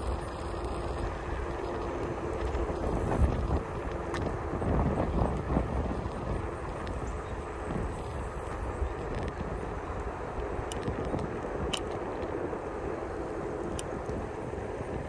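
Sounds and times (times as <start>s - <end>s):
wind buffeting microphone: 0.0s - 15.0s
faint clicks and knocks: 10.0s - 12.5s.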